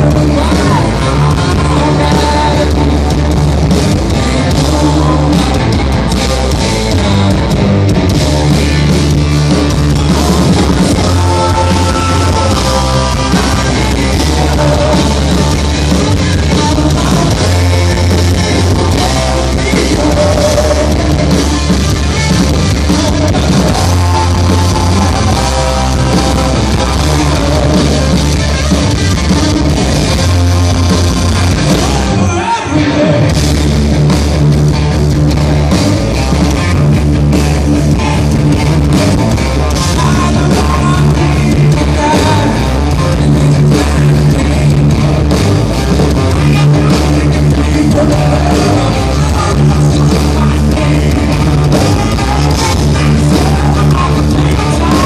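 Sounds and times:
live hard rock band: 0.0s - 55.0s.

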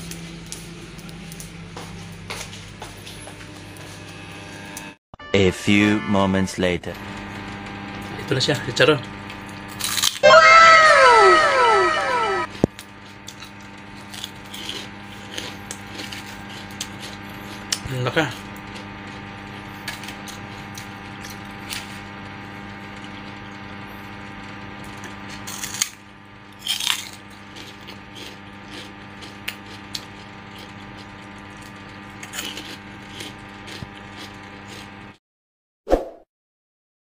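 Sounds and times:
steady electrical hum: 6.6s - 35.2s
person chewing crispy pork rinds: 9.0s - 10.6s, 12.4s - 35.2s.

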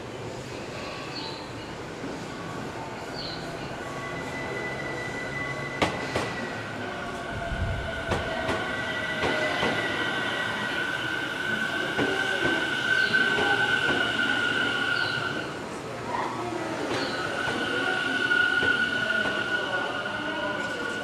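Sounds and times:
train wheel squeal: 3.1s - 15.6s, 16.8s - 21.0s.

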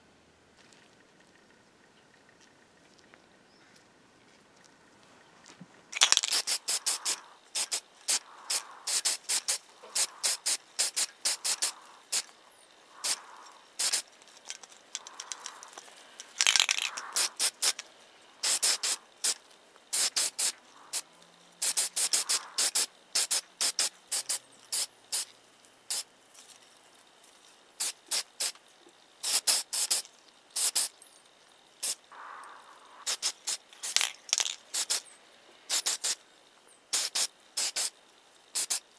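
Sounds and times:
spray paint can hissing: 6.0s - 26.7s, 27.8s - 28.6s, 29.2s - 35.1s, 35.7s - 36.2s, 36.9s - 38.9s.

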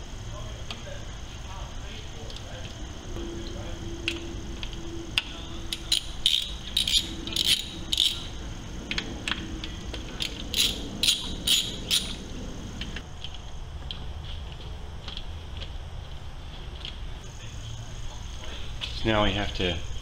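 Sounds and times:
ratchet wrench clicking: 5.2s - 9.4s, 10.2s - 12.2s.

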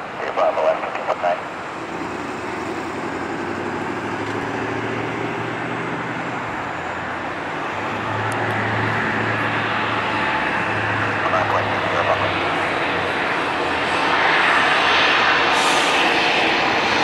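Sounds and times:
jet airliner rumble: 0.0s - 17.0s.

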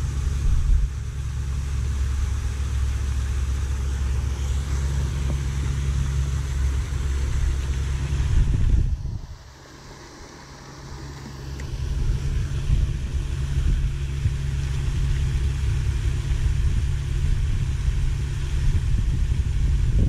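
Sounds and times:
wind buffeting microphone: 3.9s - 9.5s, 11.6s - 20.0s.

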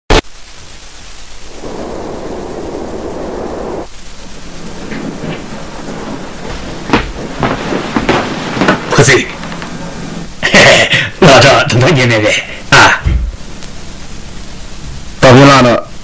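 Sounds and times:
rain: 0.1s - 11.1s
low rumble of thunder: 1.5s - 3.9s.

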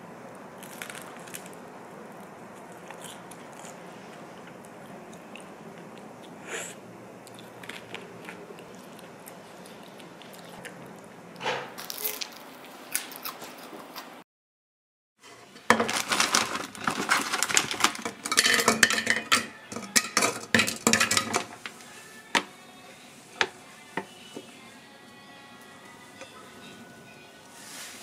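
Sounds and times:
low room hum: 0.0s - 14.2s, 15.2s - 28.0s
crunchy bites and chewing: 0.6s - 4.6s.

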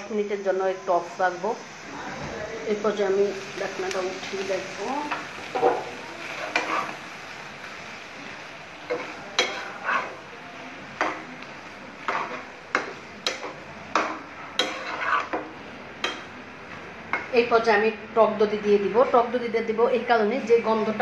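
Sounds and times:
food sizzling: 0.0s - 21.0s
metal spoon scraping frying pan: 5.1s - 7.0s, 8.9s - 10.3s, 12.0s - 16.3s.

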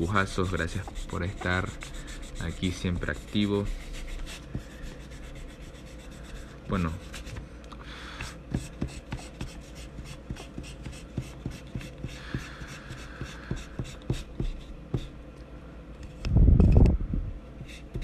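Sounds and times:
eraser rubbing on paper: 0.0s - 7.4s, 8.2s - 15.1s.

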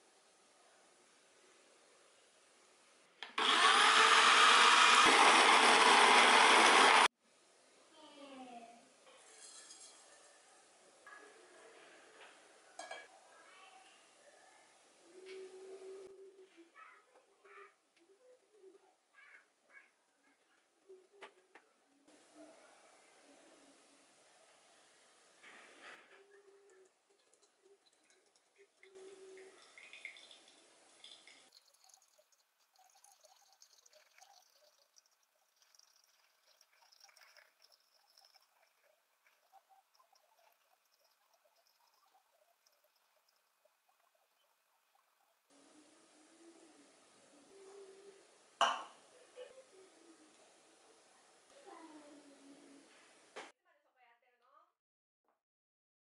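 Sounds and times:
coffee grinder grinding beans: 3.4s - 7.1s
water trickling onto coffee grounds: 25.4s - 45.6s
small drips: 26.3s - 45.5s.

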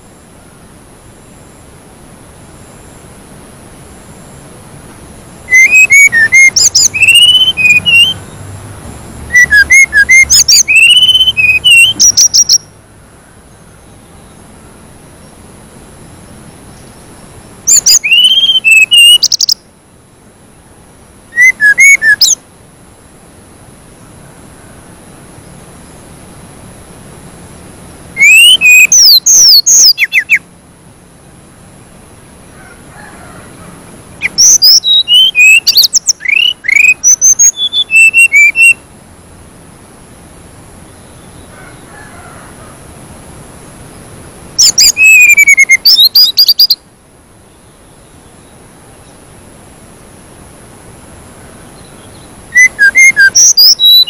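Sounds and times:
songbird whistles and trills: 5.5s - 8.4s, 9.2s - 12.7s, 17.7s - 19.6s, 21.3s - 22.4s, 28.2s - 30.4s, 34.2s - 38.8s, 44.6s - 46.8s, 51.8s - 54.0s.

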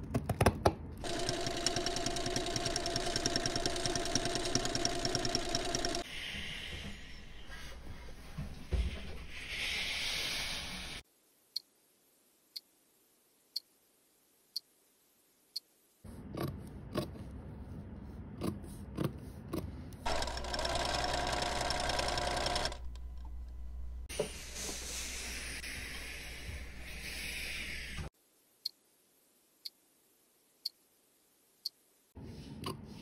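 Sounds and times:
sharp ticks: 1.0s - 6.0s
sewing machine running: 1.0s - 6.1s, 20.0s - 23.1s
steam iron hissing: 8.7s - 11.0s, 24.1s - 28.1s.

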